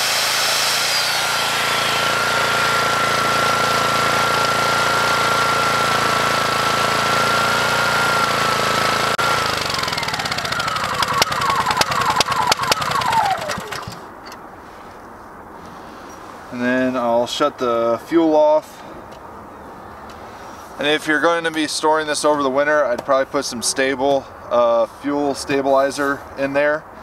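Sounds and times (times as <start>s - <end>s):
circular saw spinning down: 0.0s - 14.1s
engine sputtering and popping: 0.0s - 14.1s
generator running with high whine: 0.0s - 14.4s.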